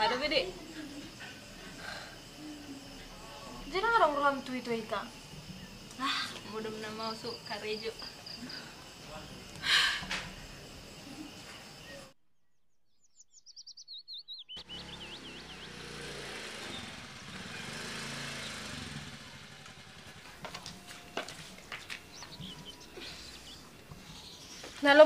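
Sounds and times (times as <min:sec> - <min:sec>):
small songbird chirping: 0:00.0 - 0:09.6, 0:10.3 - 0:25.0
steady outdoor background hiss: 0:00.0 - 0:12.2, 0:13.6 - 0:25.0.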